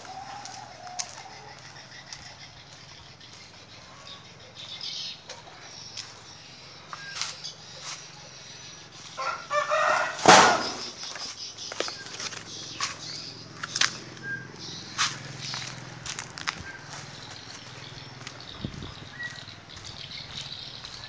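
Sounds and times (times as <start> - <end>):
bird call: 0.0 - 21.0
loud burst of rustling: 10.2 - 11.0.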